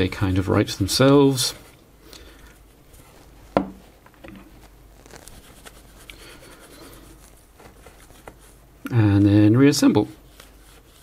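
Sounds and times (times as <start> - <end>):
baby wipe rubbing and rustling: 2.6 - 8.8, 9.8 - 11.0.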